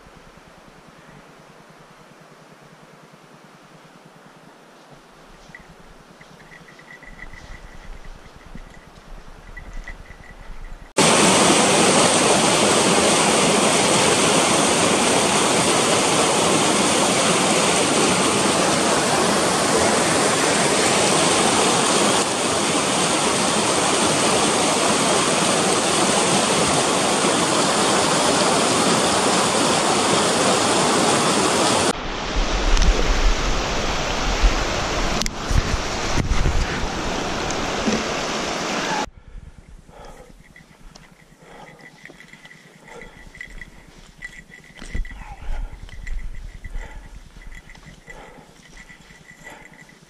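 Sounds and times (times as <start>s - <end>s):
fast-flowing water rushing: 11.0s - 39.1s, 41.6s - 50.0s
wind buffeting microphone: 32.2s - 37.9s, 39.1s - 41.2s, 42.9s - 49.8s.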